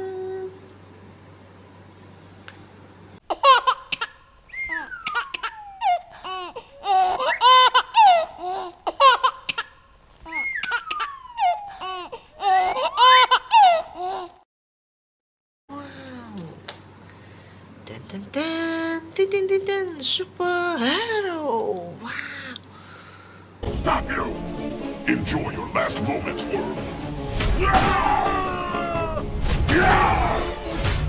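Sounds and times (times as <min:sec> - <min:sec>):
baby laughing and giggling: 0:03.3 - 0:14.4
faint low hum: 0:15.7 - 0:24.0.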